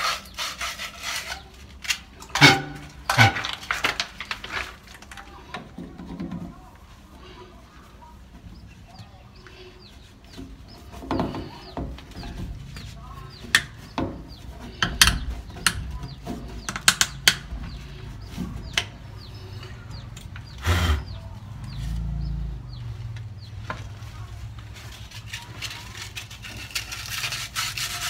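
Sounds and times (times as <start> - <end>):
birds chirping: 0.0 - 27.4
plastic pipes clicking and knocking: 1.8 - 6.5, 13.4 - 19.0.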